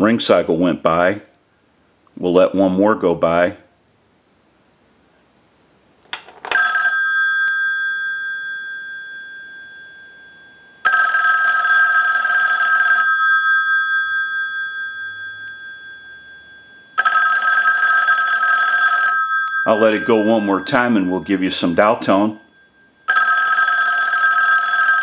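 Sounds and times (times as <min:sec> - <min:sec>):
telephone bell ringing: 0:06.5 - 0:25.0.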